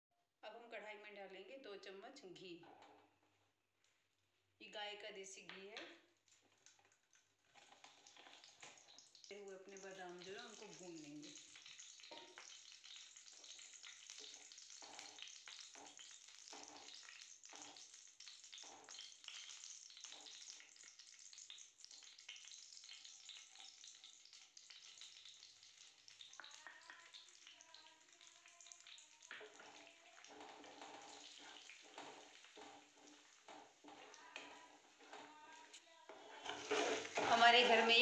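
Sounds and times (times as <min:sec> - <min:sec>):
wooden spatula stirring and scraping: 0:02.6 - 0:04.4, 0:06.2 - 0:21.3, 0:25.2 - 0:38.0
ghee sizzling faintly: 0:05.8 - 0:38.0.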